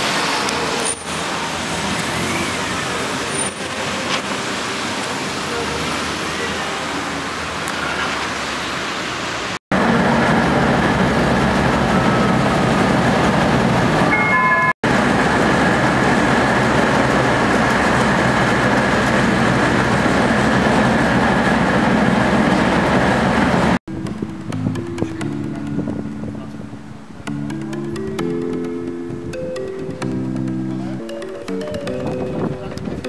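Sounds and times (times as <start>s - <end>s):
traffic on a wet street: 0.0s - 23.8s
bus running rumble and hiss: 0.0s - 28.1s
short high beeps: 14.1s - 14.8s.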